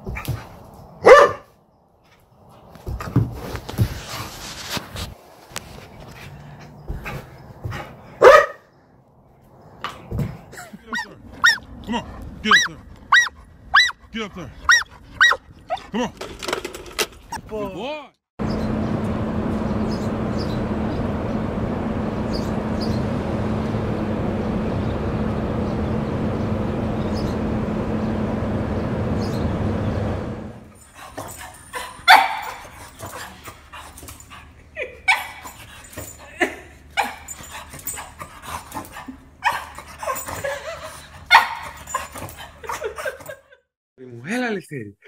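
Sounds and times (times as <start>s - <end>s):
small dog yipping and barking: 10.9s - 11.6s, 12.5s - 14.0s, 14.7s - 15.4s, 32.0s - 32.6s, 41.3s - 42.1s.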